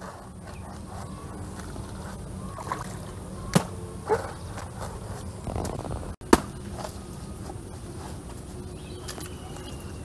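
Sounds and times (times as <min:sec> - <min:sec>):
hand tool striking tree trunks: 0:02.6 - 0:04.8, 0:05.5 - 0:07.0.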